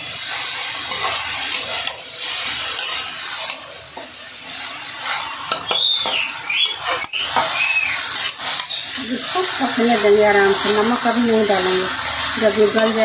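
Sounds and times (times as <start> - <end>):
vegetables sizzling: 0.0 - 13.0
metal spatula scraping pan: 0.5 - 13.0
short high squeaks: 5.7 - 8.0.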